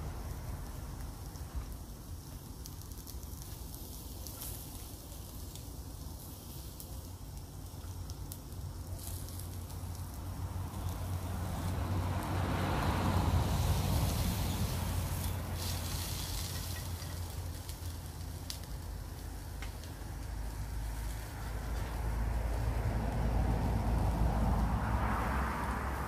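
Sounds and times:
small crackles: 0.2 - 23.6
meat sizzling in a pan: 8.6 - 18.8.

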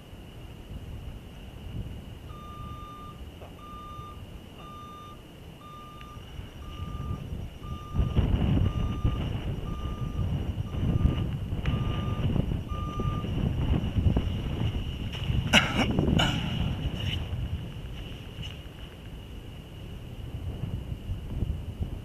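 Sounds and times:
low rumble: 0.0 - 22.0
vehicle back-up alarm beeping: 2.2 - 14.3.

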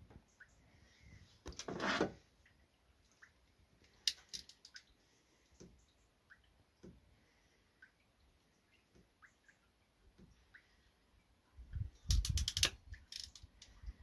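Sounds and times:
wire stripper squeezing: 12.1 - 13.5.

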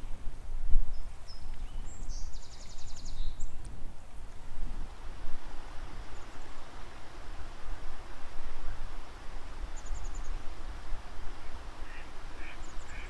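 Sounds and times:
wind on microphone: 0.0 - 13.0
songbird trill: 0.9 - 3.8, 5.6 - 7.2, 8.5 - 10.7, 11.3 - 13.0.

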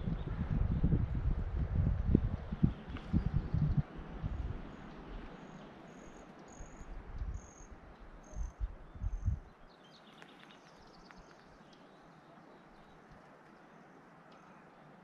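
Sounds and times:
wind buffeting on microphone: 0.0 - 9.5.

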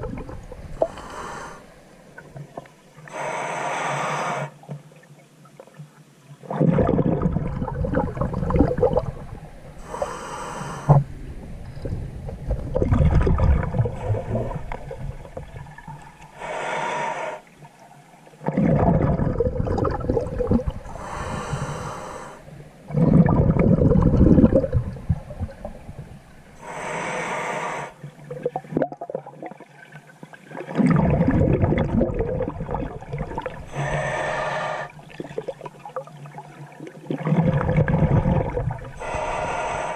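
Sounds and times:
exhaled bubbles rumbling: 0.0 - 2.9, 6.4 - 16.4, 18.4 - 26.6, 28.0 - 29.8, 30.5 - 39.9
regulator inhale hiss: 0.8 - 1.8, 3.0 - 4.6, 9.8 - 11.0, 16.3 - 17.5, 20.8 - 22.6, 26.6 - 28.1, 33.7 - 35.0, 39.0 - 39.9.

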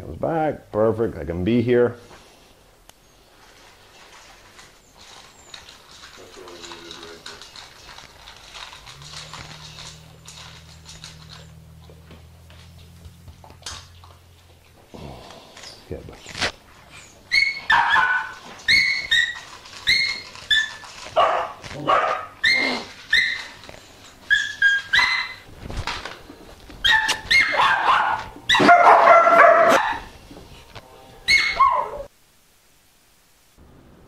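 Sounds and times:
dog whining and yelping: 16.9 - 25.5, 26.8 - 30.2, 31.3 - 32.1.

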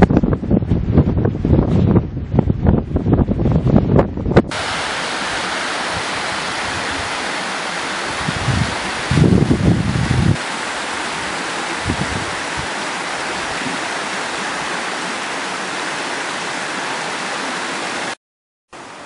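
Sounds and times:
wind buffeting microphone: 0.0 - 10.4, 11.0 - 14.3
stream rushing over rocks: 4.5 - 18.2, 18.8 - 19.0.

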